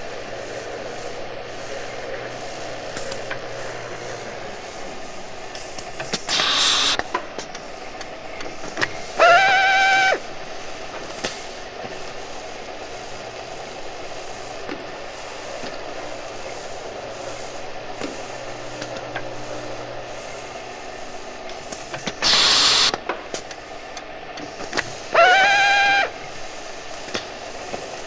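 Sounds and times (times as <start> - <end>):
electric drill motor whine: 6.3 - 7.0, 9.2 - 10.3, 22.2 - 23.0, 25.1 - 26.2
rough burst of drill noise: 6.3 - 7.0, 8.8 - 10.4, 22.2 - 23.0, 24.8 - 26.2.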